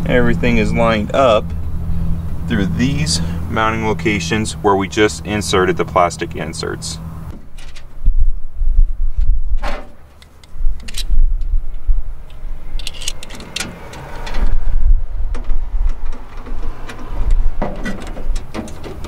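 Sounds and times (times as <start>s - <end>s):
low rumble: 0.0s - 18.6s.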